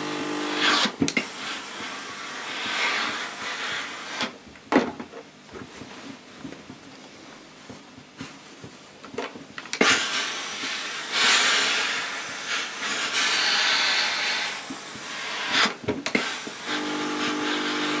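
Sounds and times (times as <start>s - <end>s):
steam iron hissing: 0.0s - 4.4s, 9.7s - 18.0s
hands smoothing cloth knocks: 5.4s - 9.6s.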